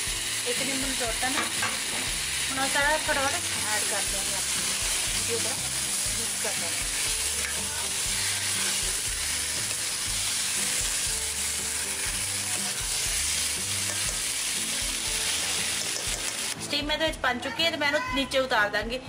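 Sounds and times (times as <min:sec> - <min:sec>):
food sizzling in oil: 0:00.0 - 0:16.6
steel spoon stirring in pan: 0:03.0 - 0:16.6.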